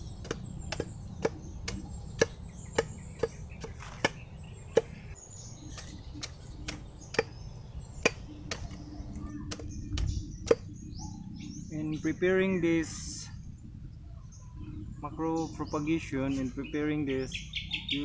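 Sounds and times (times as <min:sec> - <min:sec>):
machete chopping: 0:00.2 - 0:05.0, 0:05.7 - 0:07.4, 0:08.0 - 0:08.8, 0:09.5 - 0:10.7.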